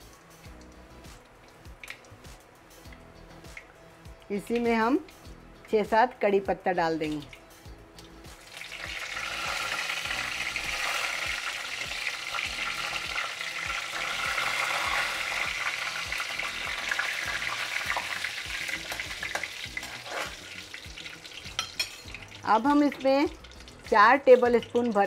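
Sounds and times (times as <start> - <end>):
leaves sizzling in hot oil: 4.3 - 25.0
spoon stirring in pan: 18.8 - 20.7.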